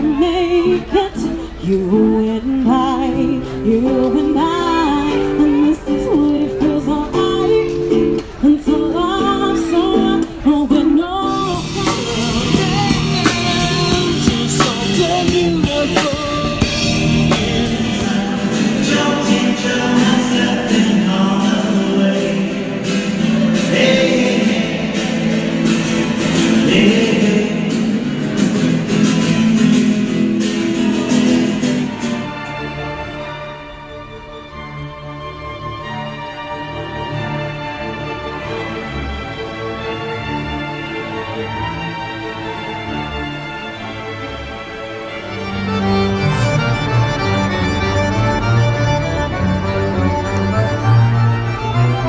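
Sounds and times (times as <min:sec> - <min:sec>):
woman singing: 0:00.0 - 0:16.8
acoustic guitar: 0:00.0 - 0:52.0
song with steady beat: 0:11.2 - 0:28.7.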